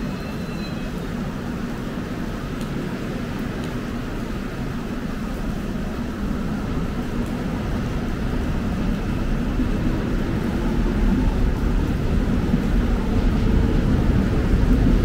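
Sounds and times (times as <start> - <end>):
electric train rumble: 5.2 - 15.0.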